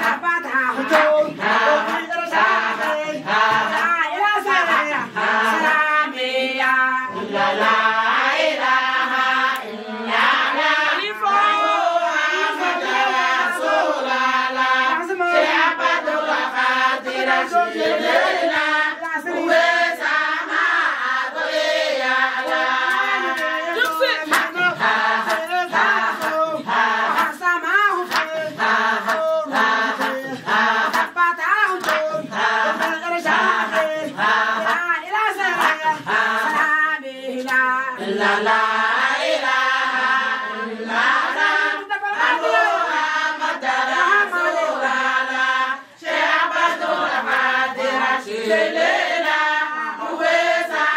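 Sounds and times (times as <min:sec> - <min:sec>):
hand claps: 0:00.0 - 0:06.0, 0:09.5 - 0:10.4, 0:19.0 - 0:19.2, 0:22.4 - 0:37.9, 0:46.7 - 0:48.0
women singing in unison: 0:00.0 - 0:50.9.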